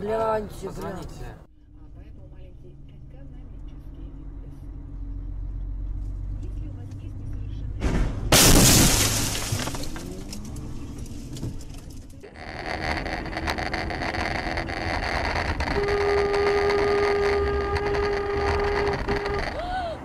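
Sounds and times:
car road and engine noise: 0.0s - 20.0s
car horn tone: 15.4s - 19.7s.

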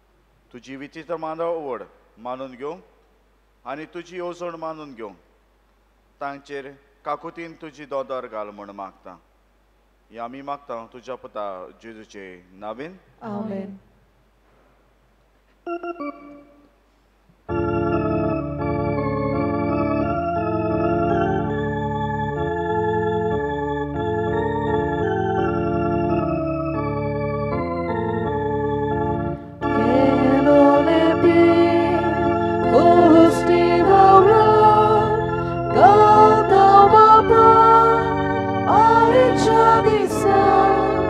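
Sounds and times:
organ playing sustained chords: 15.7s - 16.7s, 17.5s - 41.0s
people singing a hymn: 29.6s - 41.0s.

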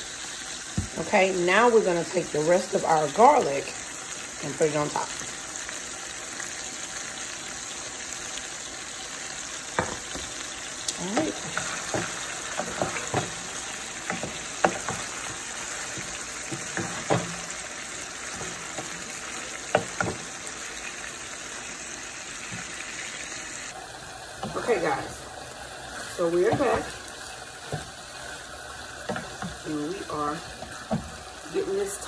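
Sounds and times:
chicken frying in oil: 0.0s - 32.0s
spatula knocking and scraping pan: 9.7s - 20.5s, 26.3s - 27.0s, 27.6s - 28.3s, 29.0s - 29.8s, 30.5s - 31.2s.

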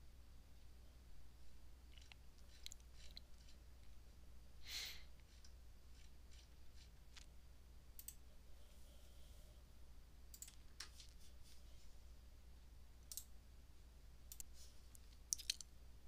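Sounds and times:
faint low hum: 0.0s - 16.0s
computer mouse clicks: 8.0s - 8.2s, 10.3s - 11.1s, 13.0s - 13.3s, 14.3s - 15.6s.

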